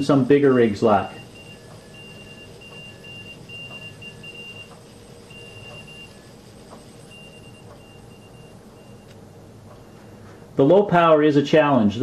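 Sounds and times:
morse code beeps: 0:00.0 - 0:09.2
fainter lower morse signal: 0:00.0 - 0:10.1.

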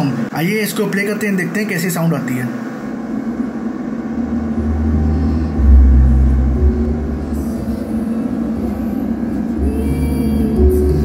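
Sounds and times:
deep bass notes: 0:03.9 - 0:11.0.

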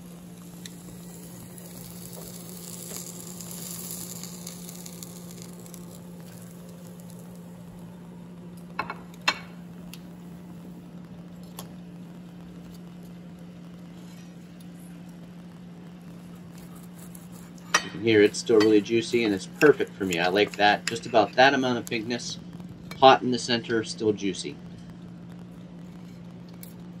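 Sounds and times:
faint hiss: 0:00.0 - 0:11.0
low hum: 0:00.0 - 0:27.0.

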